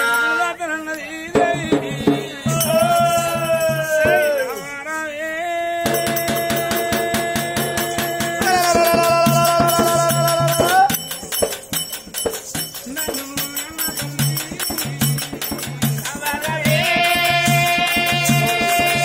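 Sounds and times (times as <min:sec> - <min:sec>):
jingling percussion: 0:00.0 - 0:05.0, 0:05.8 - 0:19.0
long held vocal note: 0:00.0 - 0:11.0
rhythmic drum beats: 0:01.3 - 0:04.7, 0:05.8 - 0:19.0.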